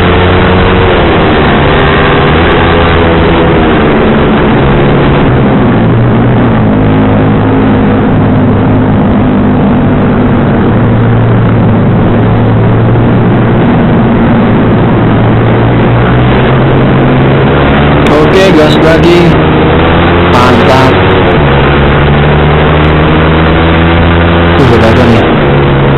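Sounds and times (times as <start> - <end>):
motorcycle engine: 0.0 - 25.9
wind and road noise: 0.0 - 25.9.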